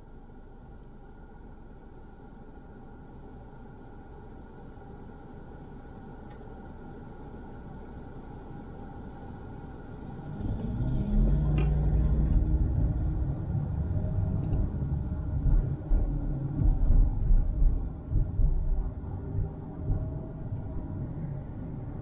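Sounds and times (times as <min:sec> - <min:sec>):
car engine accelerating: 0:10.2 - 0:20.9.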